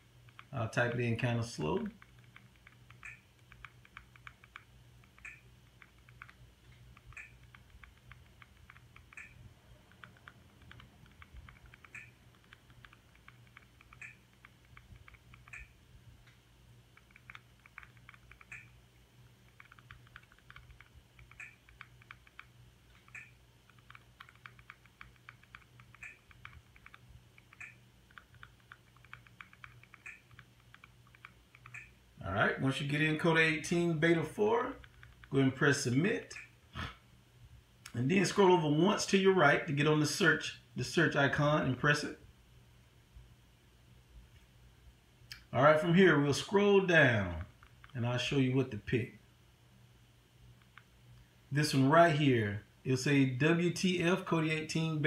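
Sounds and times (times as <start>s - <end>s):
low steady hum: 0.0s - 55.0s
remote control buttons clicking: 0.2s - 1.0s, 1.6s - 18.8s, 19.4s - 32.0s, 36.3s - 36.6s.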